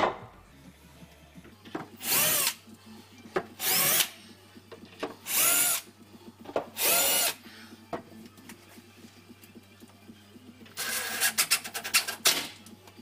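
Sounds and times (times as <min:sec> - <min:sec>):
cordless drill motor whining: 0:03.6 - 0:04.1, 0:05.3 - 0:05.8, 0:06.8 - 0:07.4.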